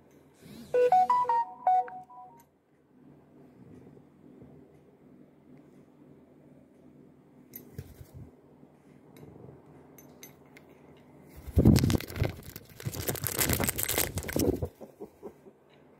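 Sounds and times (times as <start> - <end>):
phone microphone scraping and rustling: 11.4 - 14.7.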